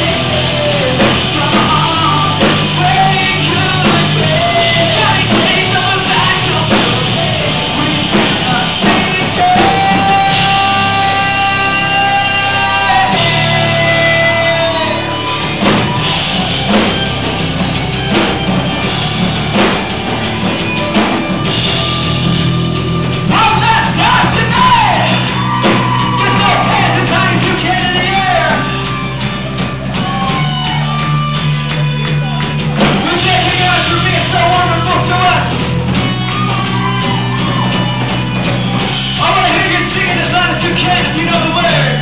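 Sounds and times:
person singing and shouting: 0:00.0 - 0:15.4, 0:23.3 - 0:28.7, 0:33.0 - 0:35.6
guitar chords: 0:00.0 - 0:42.0
heavy drum hits: 0:00.0 - 0:42.0.

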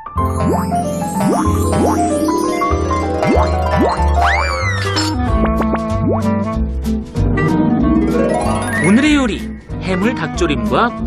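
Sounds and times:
cartoon jingle music: 0:00.2 - 0:05.3, 0:07.2 - 0:10.9.

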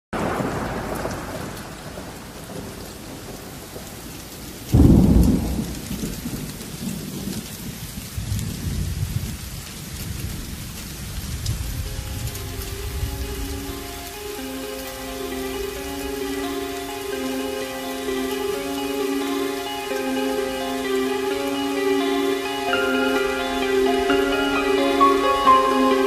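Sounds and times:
steady rain: 0:00.1 - 0:26.0
thunder clap and rumbling: 0:00.2 - 0:14.2.

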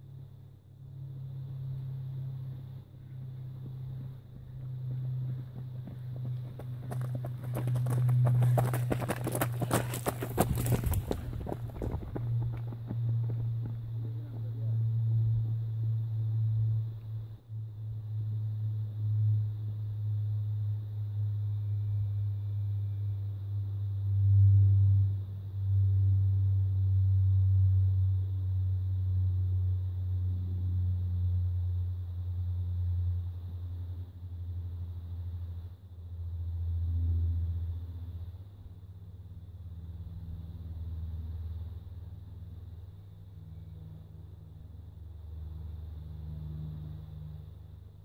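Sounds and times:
wind buffeting microphone: 0:07.6 - 0:12.6.

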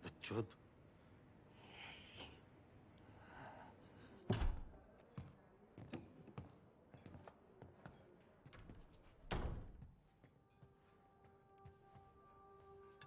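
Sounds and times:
heavy door thud: 0:09.3 - 0:09.8
footsteps on hard floor: 0:09.7 - 0:12.7.

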